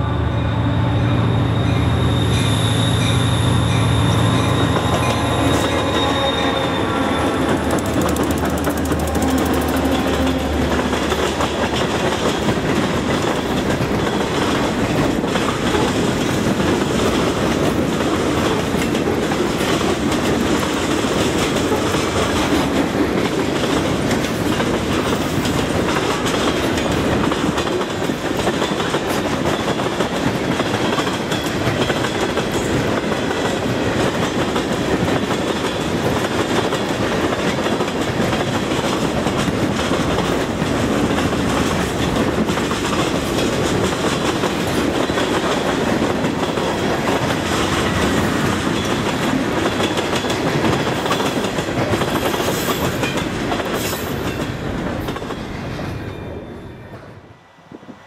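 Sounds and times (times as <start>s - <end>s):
diesel locomotive engine drone: 0.0s - 29.4s
thin high whine: 0.2s - 7.6s
train wheels rattling on rails: 1.2s - 58.0s.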